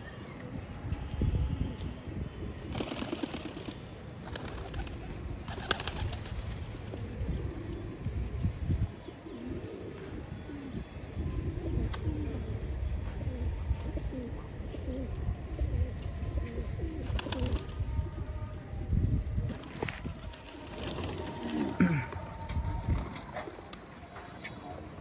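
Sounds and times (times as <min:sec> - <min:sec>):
pigeons cooing: 0:06.8 - 0:17.7.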